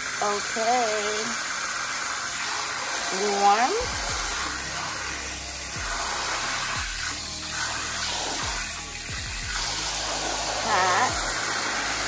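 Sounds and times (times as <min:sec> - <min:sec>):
water spraying into basin: 0:00.0 - 0:12.0.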